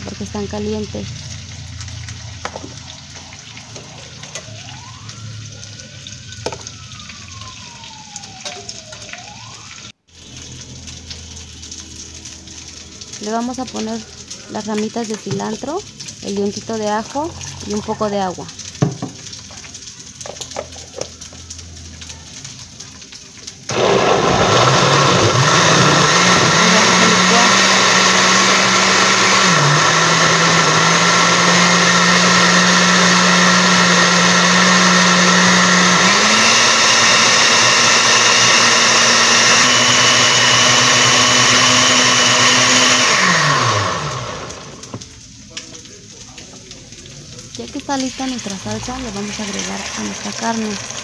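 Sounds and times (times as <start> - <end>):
blender motor running: 23.7 - 45.0, 48.3 - 51.0.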